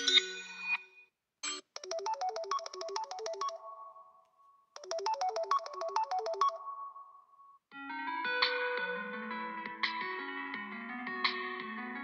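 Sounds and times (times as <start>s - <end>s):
different phone ringtone: 1.4s - 4.2s, 4.8s - 7.2s
phone ringtone melody: 1.8s - 4.2s, 4.8s - 7.2s.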